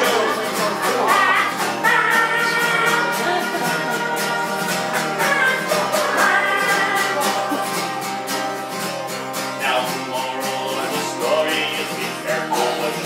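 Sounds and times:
person singing long notes: 0.0 - 8.4
acoustic guitar strumming: 0.0 - 13.0.

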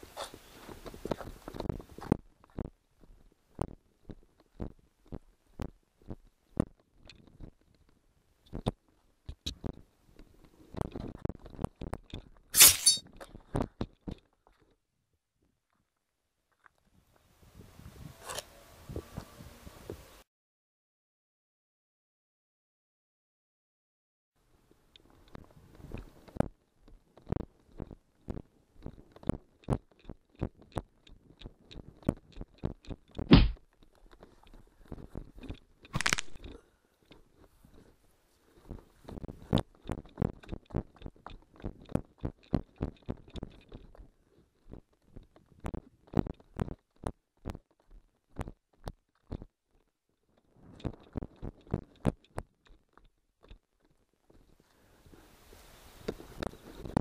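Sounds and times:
heavy thump: 33.3 - 33.6.

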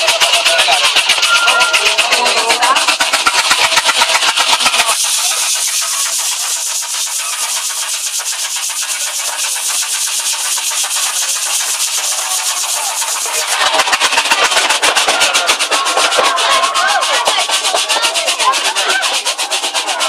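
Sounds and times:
squealing tones: 0.0 - 6.1
miniature train clattering in tunnel: 0.0 - 20.0.

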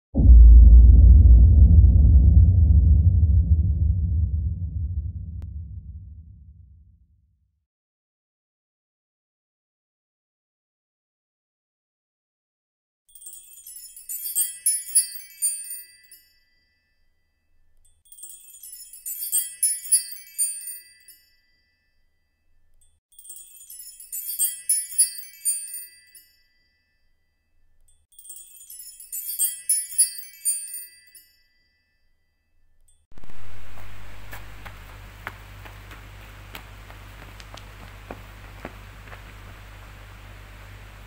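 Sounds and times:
high tinkling chime: 13.1 - 33.1.

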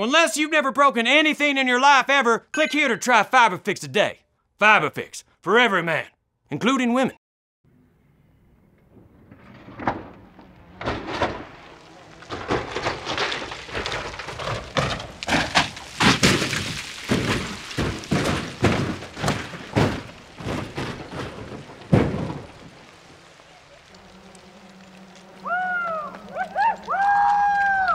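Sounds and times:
car crashing down rocky slope: 8.9 - 27.9.

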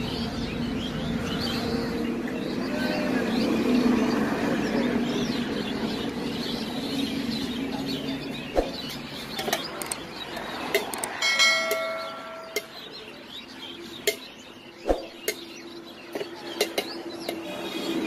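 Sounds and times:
bell-like ring: 11.2 - 12.7.

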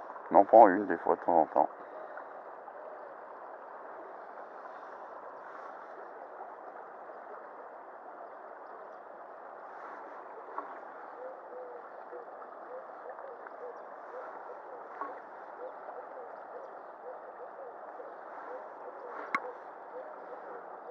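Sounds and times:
river water babbling: 0.0 - 20.9
small click: 19.2 - 19.4.

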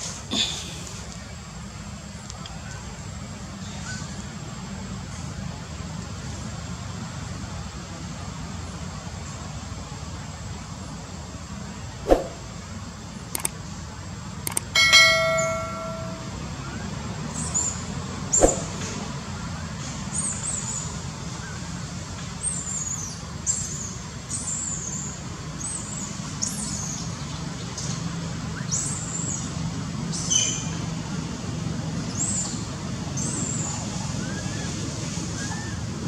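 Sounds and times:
distant traffic rumble: 4.4 - 36.0
sharp click: 12.1 - 12.4, 13.3 - 13.6, 14.5 - 16.2, 18.4 - 18.9.

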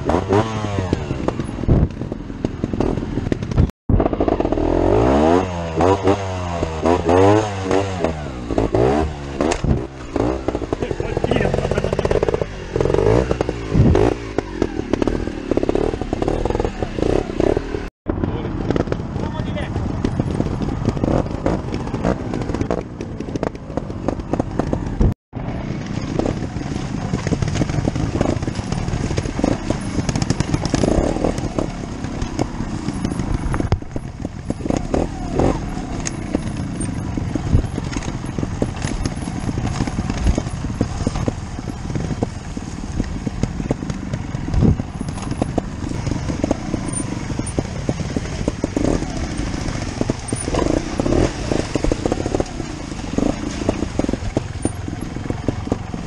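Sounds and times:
motorcycle running at low speed: 0.0 - 56.0.

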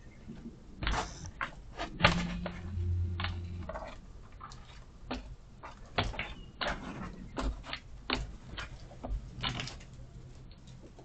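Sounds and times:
chicken feet on wooden ramp: 0.3 - 11.0
low hum: 0.9 - 4.4.

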